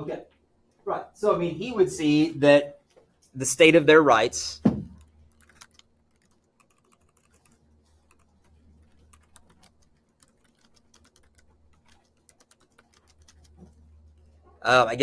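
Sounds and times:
faint keyboard typing: 0:04.9 - 0:14.4.

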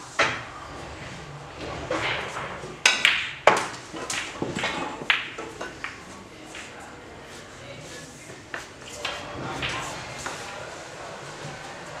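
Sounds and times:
cue tip striking ball: 0:01.6 - 0:06.0
snooker balls clicking: 0:01.6 - 0:06.8.

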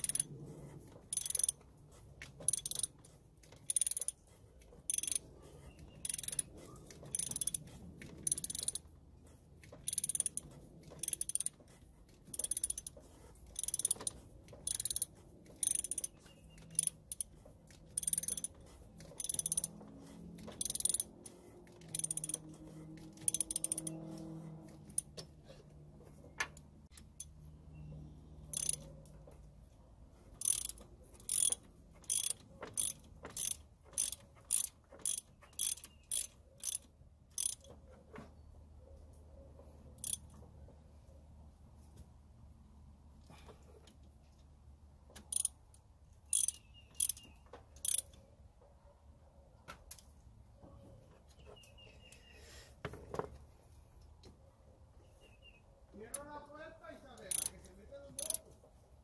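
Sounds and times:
ratchet wrench clicking: 0:00.0 - 0:00.3, 0:01.1 - 0:01.6, 0:02.4 - 0:05.3, 0:06.0 - 0:08.9, 0:09.6 - 0:11.6, 0:12.2 - 0:19.8, 0:20.4 - 0:21.1, 0:21.7 - 0:22.5, 0:23.1 - 0:24.0, 0:24.8 - 0:25.3, 0:26.9 - 0:27.4, 0:28.5 - 0:28.9, 0:30.4 - 0:37.7, 0:40.0 - 0:40.3, 0:45.2 - 0:45.6, 0:46.3 - 0:48.2, 0:57.3 - 0:58.4.

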